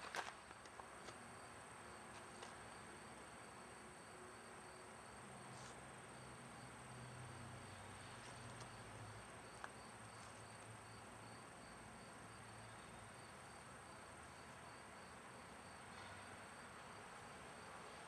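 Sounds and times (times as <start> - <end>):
insects chirping: 0.1 - 17.8.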